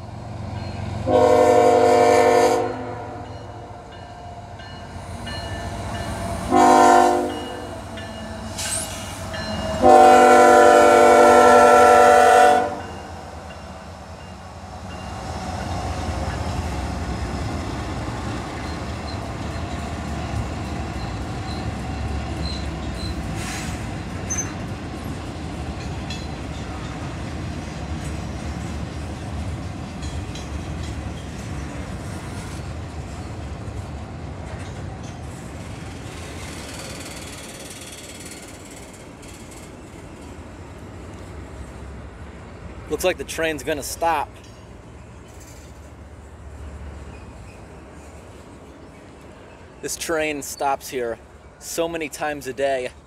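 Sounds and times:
train rumbling past: 0:00.0 - 0:53.0
locomotive air horn blasts: 0:01.0 - 0:03.3, 0:06.5 - 0:07.7, 0:09.8 - 0:12.9.

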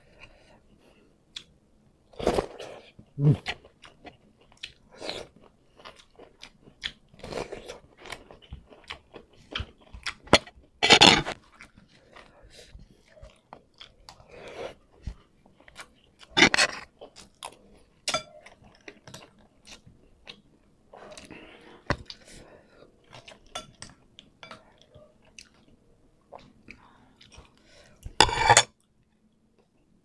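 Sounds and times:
chewing with wet mouth clicks: 0:03.7 - 0:04.8, 0:05.8 - 0:07.2, 0:23.0 - 0:27.6.

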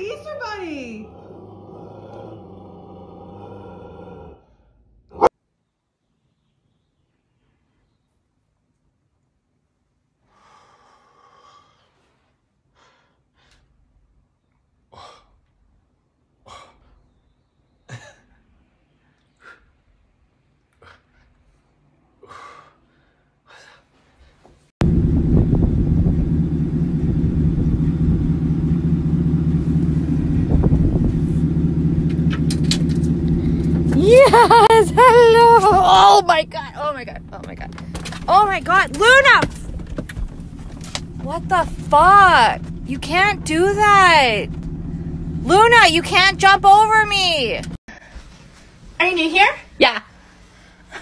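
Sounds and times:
car engine idling: 0:24.8 - 0:47.8.

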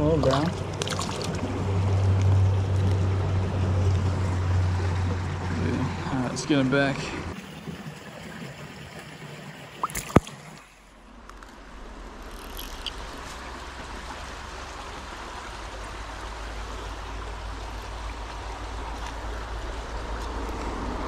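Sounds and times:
creek water running: 0:00.0 - 0:21.0.

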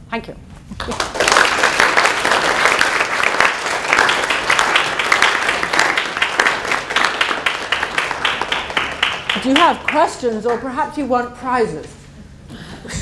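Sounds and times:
audience clapping: 0:00.8 - 0:10.8.

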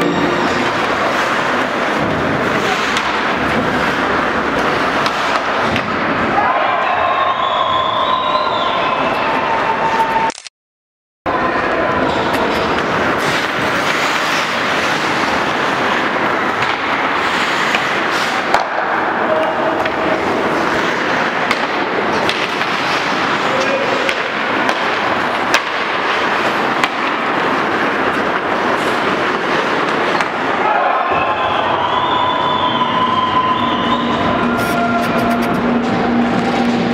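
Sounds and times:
hockey sticks and puck clacking: 0:00.0 - 0:07.0, 0:11.9 - 0:32.3, 0:33.6 - 0:36.9
skates hissing on ice: 0:17.1 - 0:18.4.

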